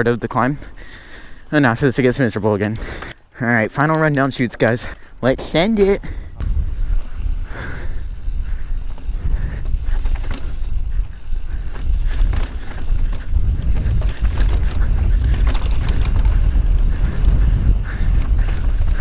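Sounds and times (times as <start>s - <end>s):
bike clicks and knocks: 2.5s - 3.2s, 3.8s - 4.8s, 8.0s - 19.0s
wind buffeting microphone: 6.0s - 19.0s
tyres rolling over dirt and rock: 8.1s - 19.0s.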